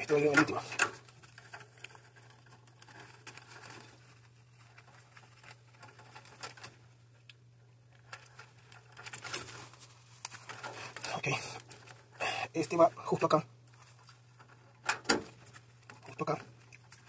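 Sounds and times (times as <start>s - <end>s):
gloved hands rustling: 9.1s - 12.0s.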